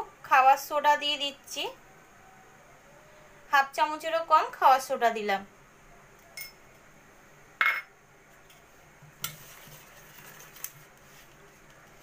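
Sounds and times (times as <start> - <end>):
whisk stirring flour in bowl: 9.1 - 12.0.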